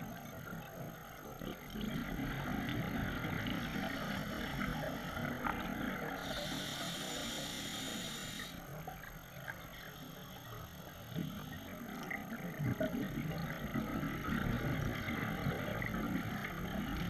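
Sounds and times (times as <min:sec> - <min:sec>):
regulator inhale hiss: 0:06.0 - 0:08.8.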